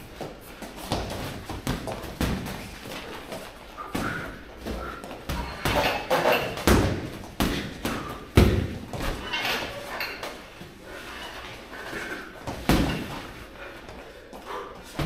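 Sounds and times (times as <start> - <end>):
boxing glove punch thuds: 6.6 - 9.2.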